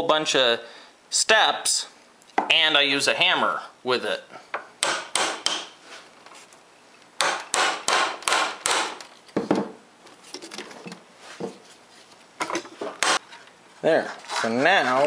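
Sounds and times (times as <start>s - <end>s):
hammer tapping metal tool: 4.6s - 5.7s.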